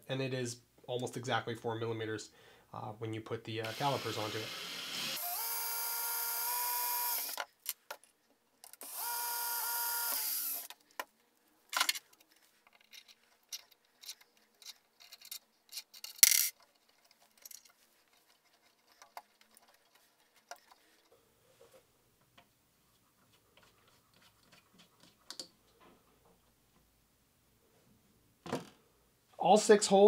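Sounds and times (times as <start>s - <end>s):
cordless drill drilling: 3.6s - 7.4s, 8.8s - 10.7s.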